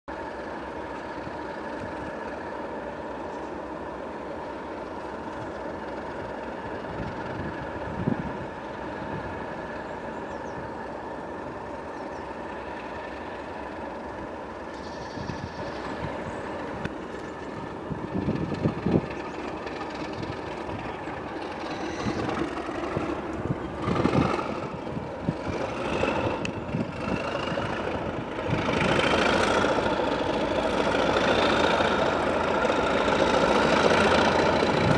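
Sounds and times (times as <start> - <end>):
diesel locomotive engine running: 0.1 - 34.9
rising turbo whistle: 21.6 - 22.7.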